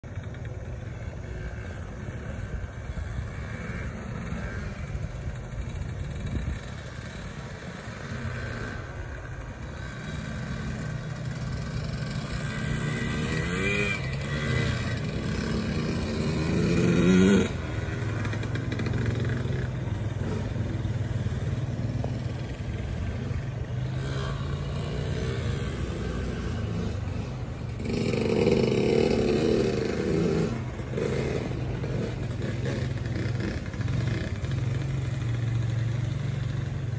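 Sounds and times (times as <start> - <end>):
dirt bike engine revving: 1.0 - 36.6.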